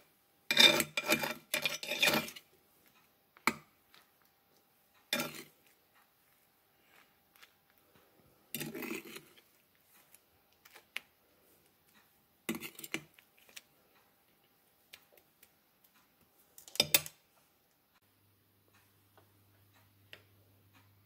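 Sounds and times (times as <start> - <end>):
fork scraping earthenware dish: 0.5 - 2.5, 5.1 - 5.8, 8.5 - 10.8, 12.5 - 13.6.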